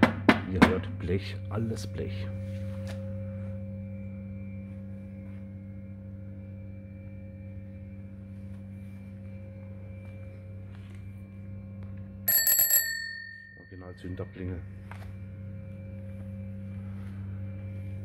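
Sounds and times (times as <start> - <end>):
low hum: 0.9 - 18.0
handlebar bell ringing: 12.3 - 14.2.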